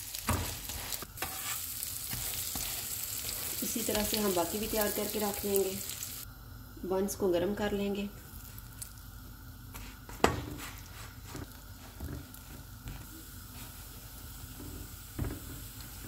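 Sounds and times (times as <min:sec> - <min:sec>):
buns sizzling on hot griddle: 0:00.0 - 0:06.3, 0:10.8 - 0:16.0.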